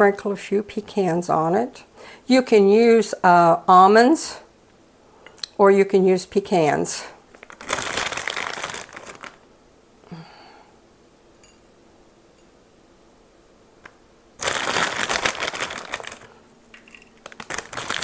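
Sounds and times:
plastic bag crinkling: 7.3s - 9.5s, 14.4s - 18.0s.

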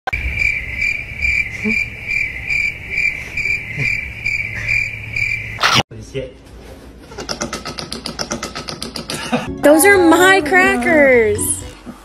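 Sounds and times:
cricket chirping: 0.1s - 5.8s.

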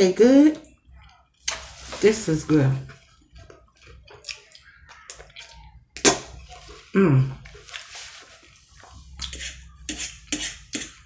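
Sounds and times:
wet slurping and chewing: 2.9s - 11.0s.

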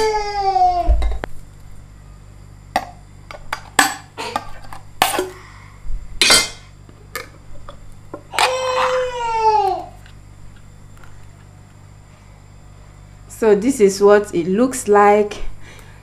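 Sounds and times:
child crying out: 0.0s - 1.1s, 8.3s - 10.0s.

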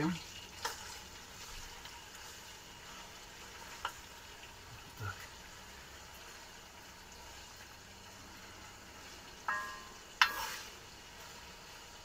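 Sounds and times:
meat sizzling in oil: 0.0s - 12.0s
ladle clinking on pot: 9.4s - 10.6s.

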